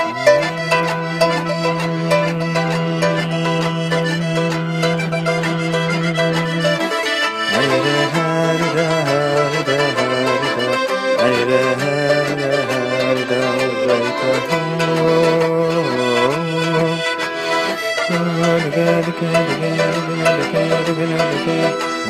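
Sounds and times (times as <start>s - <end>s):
accordion dance tune: 0.0s - 22.0s.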